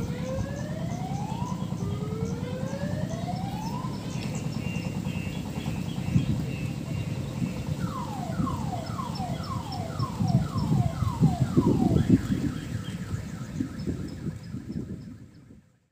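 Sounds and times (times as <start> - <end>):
train engine running: 0.0 - 9.3
electronic alarm siren: 0.0 - 15.6.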